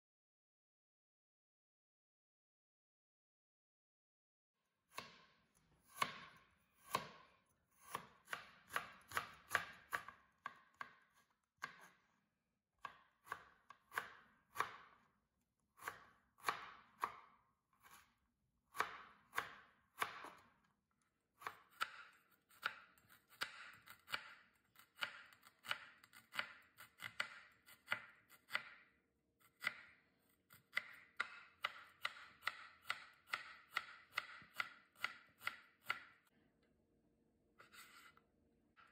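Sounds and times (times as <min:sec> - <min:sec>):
knife chopping on plastic board: 0:04.9 - 0:12.0, 0:12.8 - 0:15.0, 0:15.8 - 0:18.1, 0:18.7 - 0:20.6, 0:21.4 - 0:28.8, 0:29.4 - 0:36.3.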